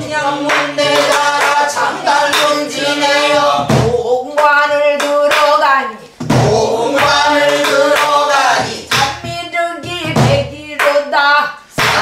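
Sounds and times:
barrel drum thump: 6.2s - 7.2s.

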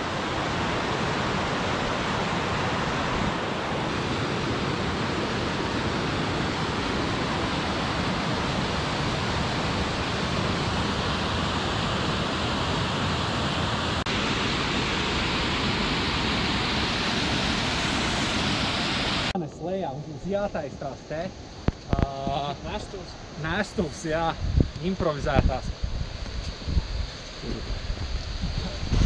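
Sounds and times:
waterfall rushing over rocks: 0.0s - 19.4s.

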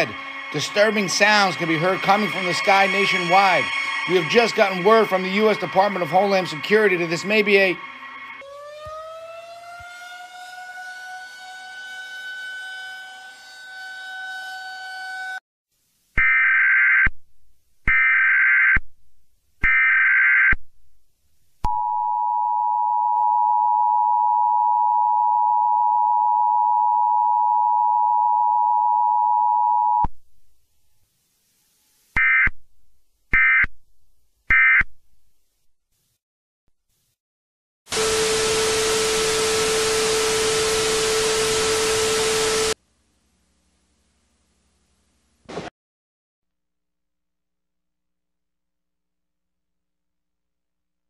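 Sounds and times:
data burst tones: 0.0s - 8.4s
siren tone: 0.0s - 15.4s, 21.7s - 30.1s, 37.9s - 42.8s.

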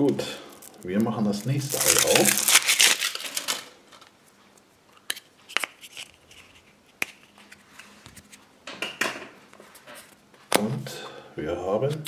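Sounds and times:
foil wrapper crinkling: 0.6s - 4.2s.

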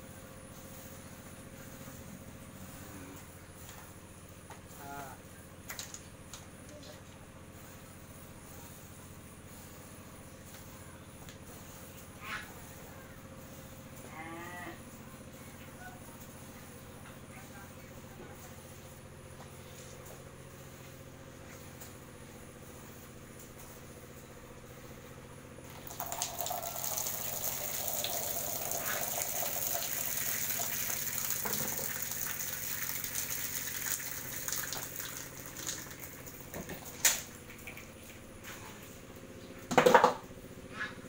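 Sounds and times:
cow urinating on concrete: 25.7s - 38.3s.

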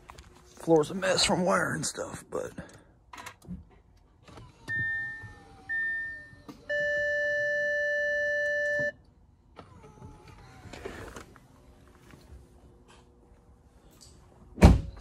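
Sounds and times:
car warning chime: 4.7s - 9.0s.

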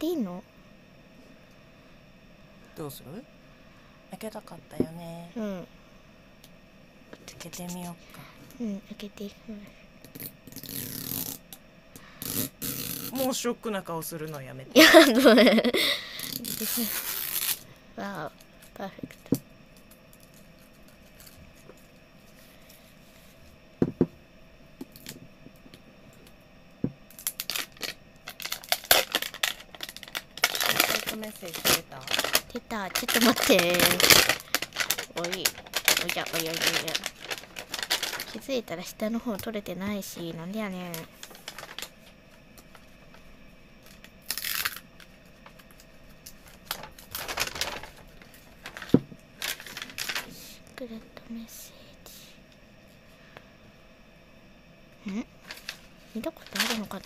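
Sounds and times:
paper wrapping crinkling and tearing: 16.3s - 17.6s, 27.1s - 38.5s, 40.9s - 41.9s, 43.9s - 44.8s, 46.3s - 50.3s, 55.4s - 57.0s.

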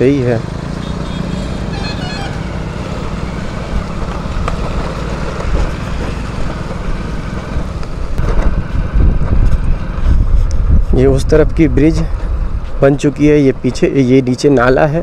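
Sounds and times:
motorbike engine and tyres rumble: 0.0s - 15.0s
wind on microphone: 8.2s - 12.7s.

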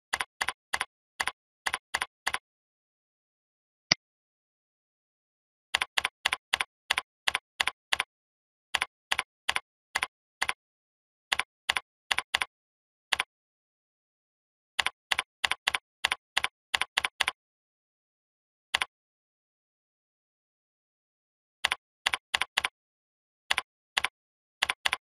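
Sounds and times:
keyboard typing clicks: 0.1s - 2.4s, 23.5s - 25.0s.

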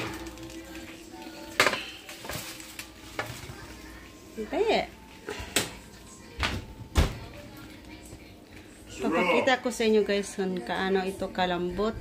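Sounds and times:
aluminium foil crinkling: 0.0s - 4.2s.

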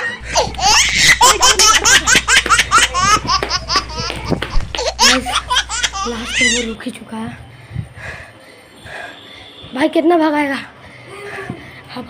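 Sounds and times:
boy laughing: 0.0s - 6.8s.

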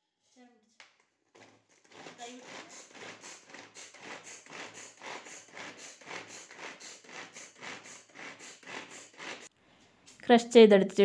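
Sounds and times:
vegetable chopper chopping: 1.4s - 9.5s.

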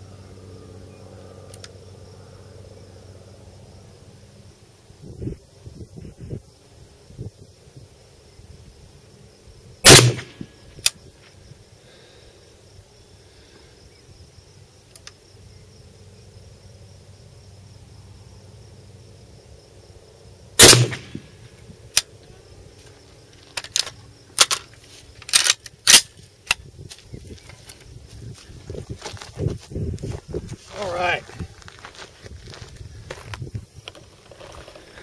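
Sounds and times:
rifle shot: 9.8s - 10.5s, 20.6s - 21.4s.

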